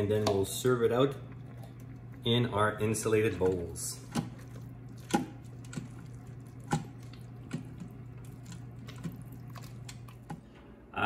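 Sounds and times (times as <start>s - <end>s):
steady low hum: 0.0s - 11.0s
scraper stirring thick dip: 1.7s - 10.5s.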